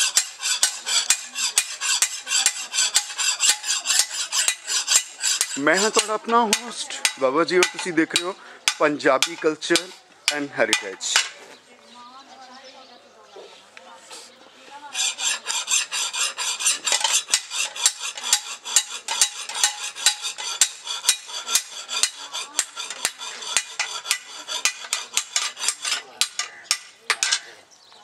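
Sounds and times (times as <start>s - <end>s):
hammer striking steel on anvil: 0.0s - 11.4s.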